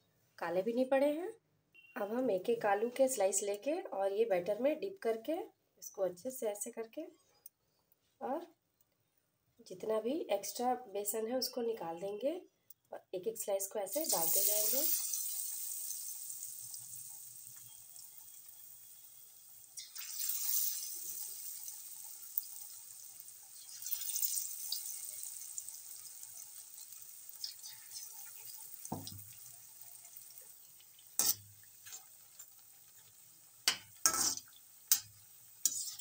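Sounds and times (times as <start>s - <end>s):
potato slices deep-frying in oil: 13.4s - 36.0s
metal spatula clinking on pan: 31.2s - 31.4s, 33.7s - 36.0s.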